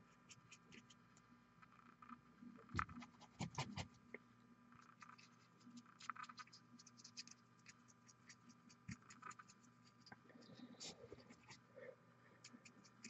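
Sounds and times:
paintbrush scratching: 0:00.0 - 0:01.0, 0:03.0 - 0:04.0, 0:04.8 - 0:11.7, 0:12.4 - 0:13.0
low steady hum: 0:00.0 - 0:13.0.

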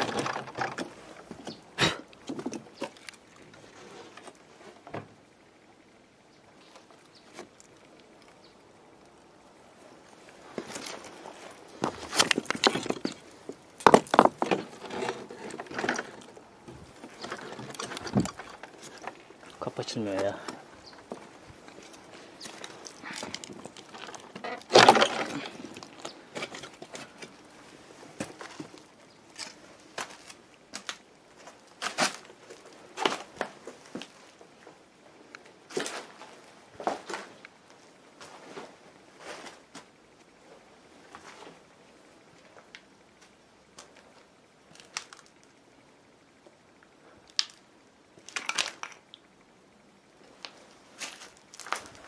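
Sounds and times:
footsteps on rubble: 0:10.1 - 0:34.4, 0:51.0 - 0:52.0.

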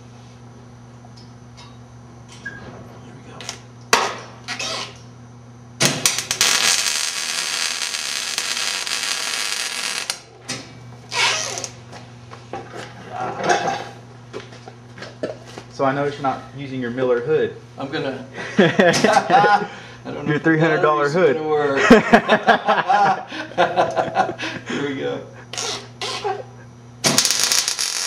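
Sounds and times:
welder arc crackling and sizzling: 0:05.8 - 0:11.8, 0:27.0 - 0:28.0.

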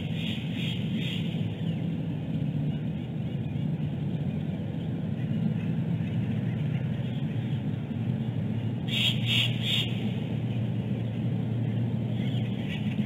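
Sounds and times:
wind rumble on microphone: 0:00.0 - 0:13.0
faint high bird calls: 0:08.8 - 0:13.0.

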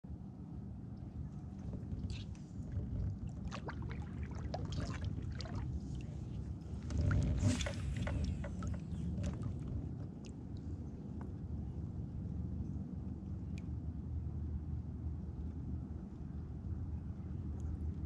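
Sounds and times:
steady low rumble: 0:00.1 - 0:18.0
water splashing: 0:01.6 - 0:10.3.

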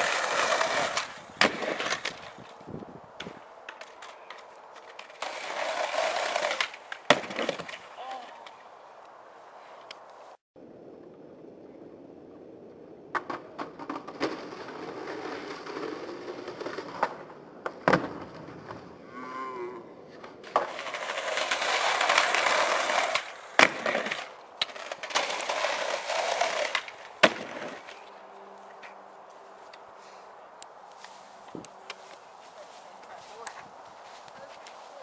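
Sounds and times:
skateboard clacks: 0:00.0 - 0:02.6, 0:03.2 - 0:08.6, 0:13.1 - 0:19.0, 0:20.2 - 0:28.1
skateboard wheels rolling on concrete: 0:00.0 - 0:35.0.

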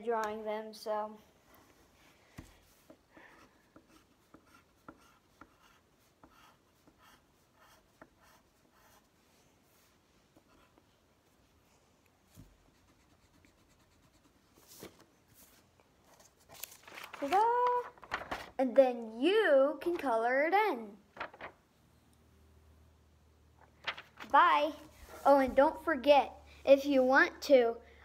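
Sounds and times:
pencil scratching on paper: 0:02.8 - 0:11.0, 0:12.6 - 0:14.8
paper rustle: 0:14.6 - 0:18.7, 0:21.1 - 0:21.6, 0:23.6 - 0:25.2.

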